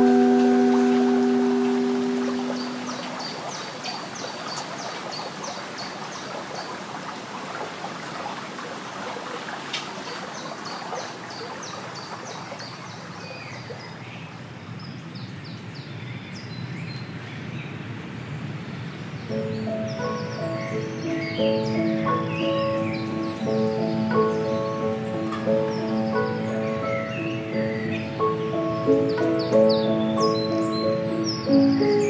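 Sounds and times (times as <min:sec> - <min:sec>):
small bird singing: 0:00.0 - 0:06.0, 0:19.3 - 0:32.0
water running over stones: 0:00.0 - 0:14.1.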